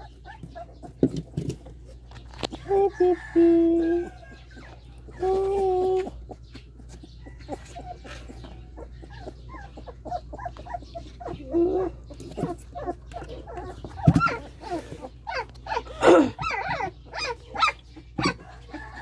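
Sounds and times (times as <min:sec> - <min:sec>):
puppies squeaking and whimpering: 0:00.0 - 0:19.0.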